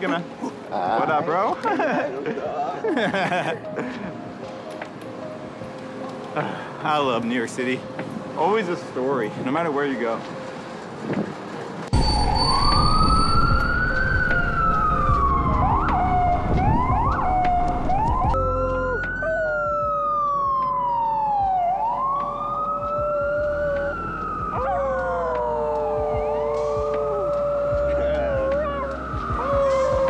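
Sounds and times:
emergency vehicle siren wailing: 11.9 - 30.0
dog howling: 23.1 - 30.0.

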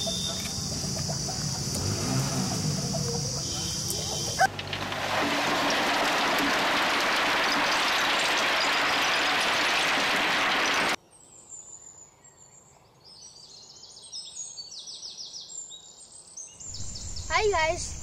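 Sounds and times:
birds chirping: 0.0 - 4.5, 16.6 - 18.0
stones sliding off trailer: 4.4 - 11.0.

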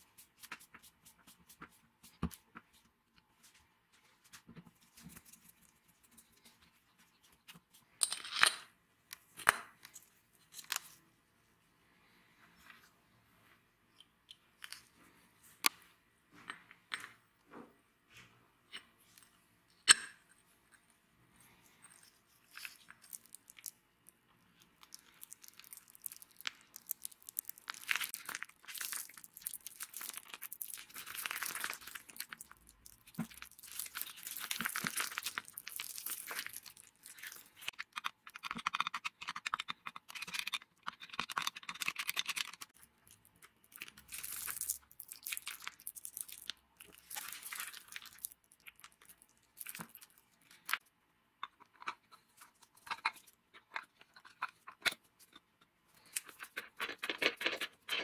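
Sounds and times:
grease squishing: 24.8 - 37.8.

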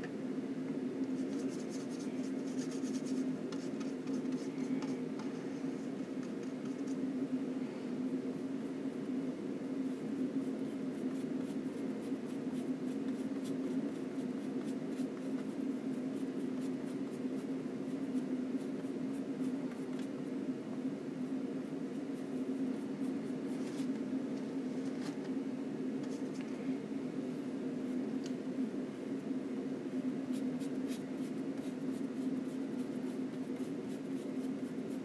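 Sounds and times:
steady low hum: 0.0 - 35.0
brush scratching paint: 1.1 - 7.0, 9.8 - 20.1, 21.6 - 23.9, 30.3 - 35.0.

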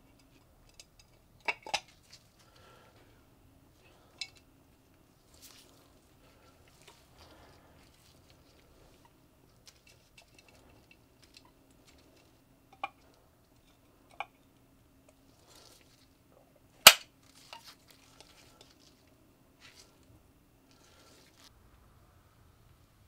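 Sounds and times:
sharp loud metal click: 16.9 - 17.1.

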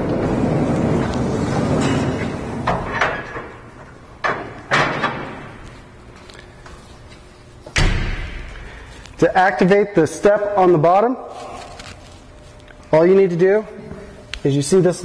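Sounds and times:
heavy thud: 7.7 - 8.7.

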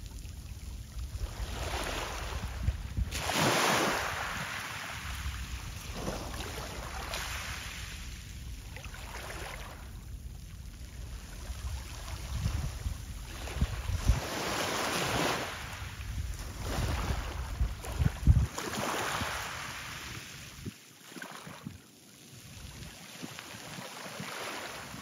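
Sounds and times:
wind buffeting microphone: 0.8 - 7.2, 11.4 - 19.8
waves washing against shore: 1.0 - 10.0, 10.7 - 21.6, 22.7 - 25.0.

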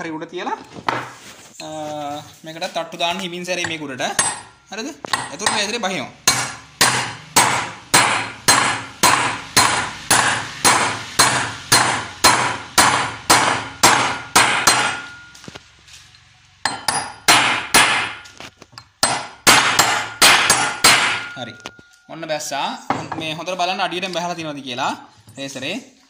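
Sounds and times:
hammer tapping on metal: 3.6 - 15.5, 16.6 - 22.0.

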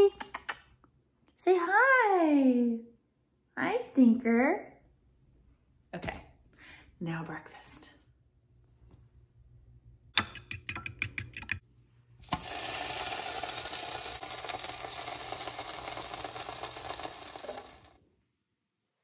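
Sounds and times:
meat sizzling on a griddle: 12.3 - 17.9.

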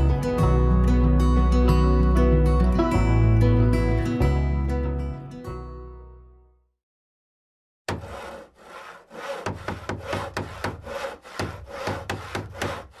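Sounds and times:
hand saw cutting wood: 7.9 - 13.0.

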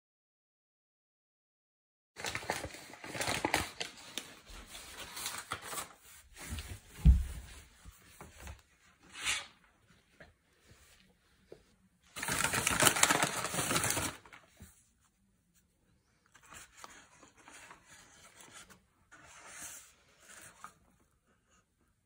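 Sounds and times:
plastic bag crinkling: 2.2 - 4.6, 12.1 - 14.5.

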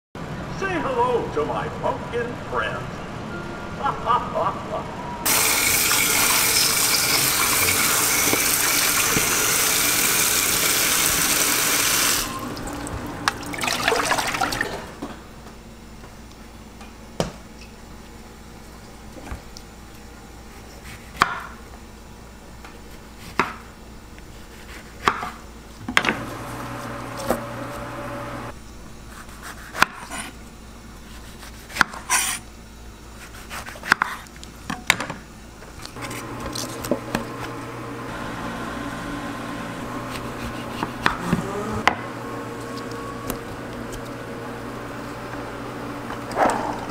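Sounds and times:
water spraying into metal colander: 5.3 - 14.8
water splashing: 5.3 - 15.0
knife cutting on wooden board: 40.1 - 41.5.

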